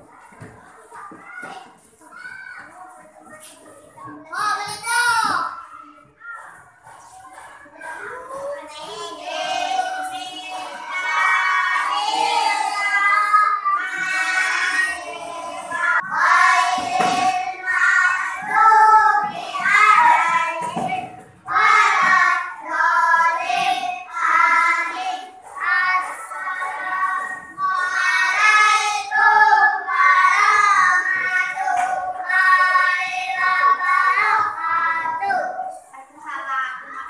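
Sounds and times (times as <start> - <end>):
child singing: 7.7 - 35.8.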